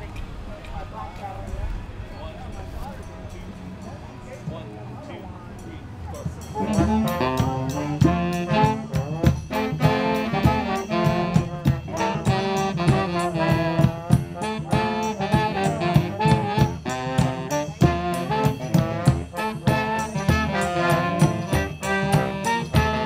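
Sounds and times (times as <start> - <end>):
brass band playing jazz: 6.2 - 23.0
drum beat: 6.4 - 23.0.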